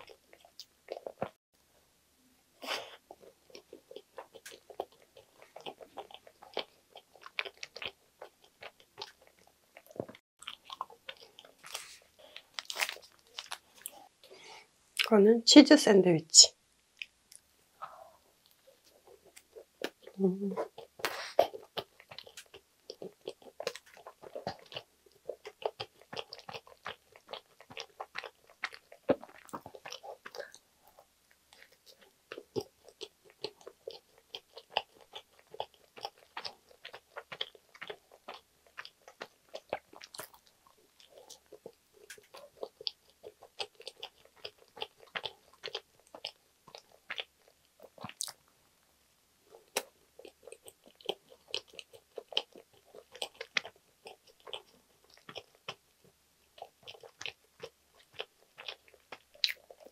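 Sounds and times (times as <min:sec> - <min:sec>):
person chewing with mouth clicks: 0:02.6 - 0:14.1, 0:17.0 - 0:48.5, 0:49.5 - 0:59.9.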